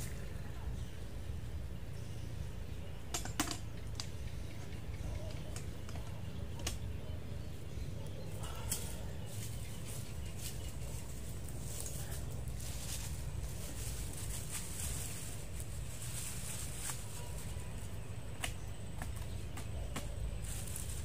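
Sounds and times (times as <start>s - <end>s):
sharp clicks and knocks: 3.1s - 6.9s.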